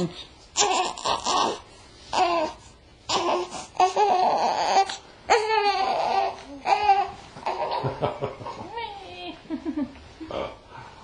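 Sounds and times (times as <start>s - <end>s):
newborn baby crying: 0.6s - 7.8s.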